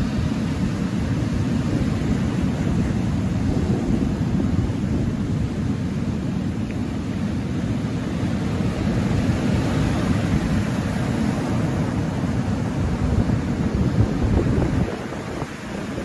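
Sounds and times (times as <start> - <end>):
waves breaking on shingle beach: 0.0 - 16.0.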